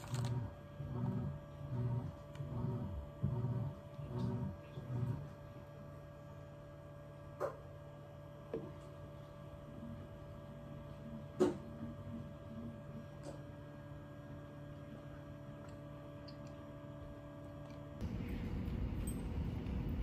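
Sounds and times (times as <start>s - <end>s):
electrical hum: 0.0s - 20.0s.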